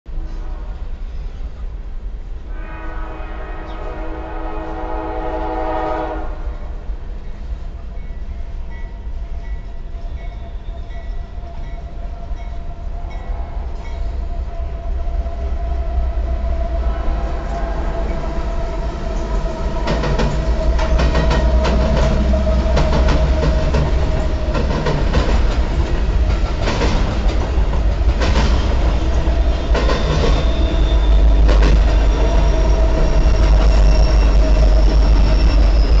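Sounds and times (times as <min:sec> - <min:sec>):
freight train rumbling past: 0:00.1 - 0:36.0
wheels clacking over rail joints: 0:19.2 - 0:36.0.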